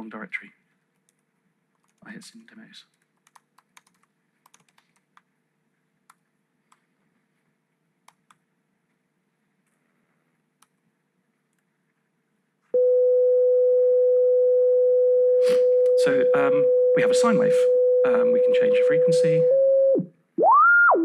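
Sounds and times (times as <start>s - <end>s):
laptop keyboard clicks: 3.2s - 5.3s
steady sine-wave tone: 12.8s - 20.8s.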